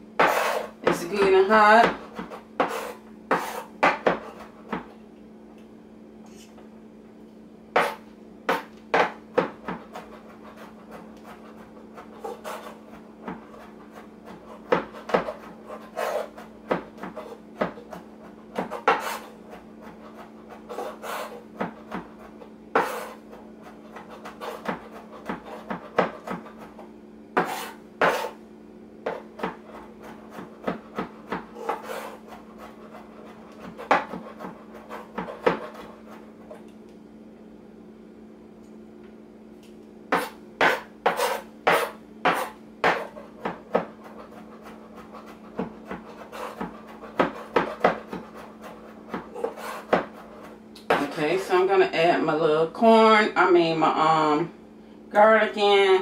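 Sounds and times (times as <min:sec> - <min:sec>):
steady low hum: 0:00.0 - 0:56.0
knife chopping on cutting board: 0:00.2 - 0:04.9, 0:07.8 - 0:28.4, 0:29.0 - 0:36.2, 0:40.1 - 0:51.1.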